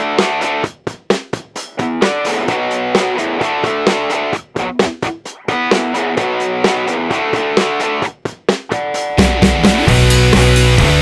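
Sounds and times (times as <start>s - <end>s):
rock music with guitar: 0.0s - 11.0s.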